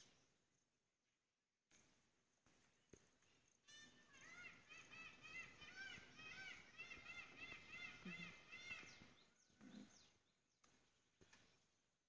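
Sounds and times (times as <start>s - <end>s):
small birds chirping: 2.4s - 11.9s.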